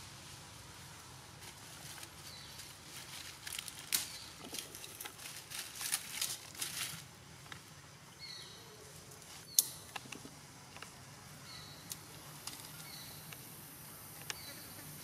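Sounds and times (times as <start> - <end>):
faint high hiss: 0.0 - 15.0.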